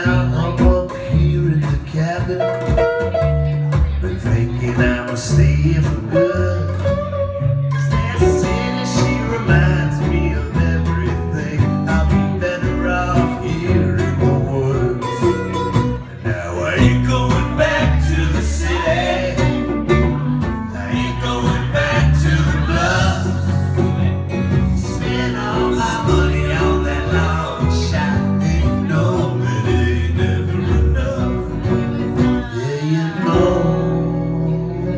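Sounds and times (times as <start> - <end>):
acoustic guitars strummed: 0.0 - 34.9
man singing: 0.0 - 34.9
harmony vocals: 3.8 - 34.9.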